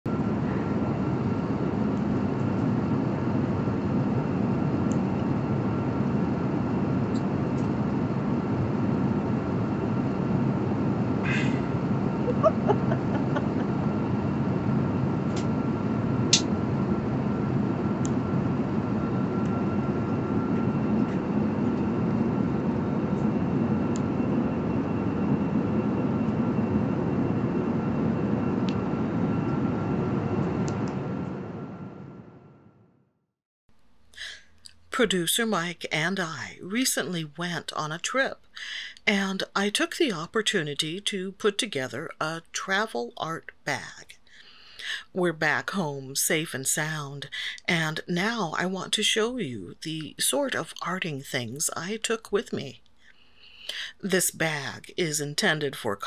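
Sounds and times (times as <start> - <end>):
faint high whine: 0.1 - 32.8.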